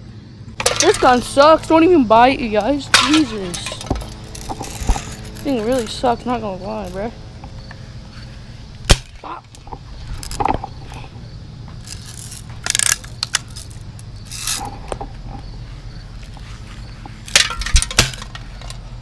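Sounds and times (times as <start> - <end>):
rustling and scraping: 2.5 - 8.8, 9.5 - 19.0
feet brushing through grass: 15.6 - 17.3.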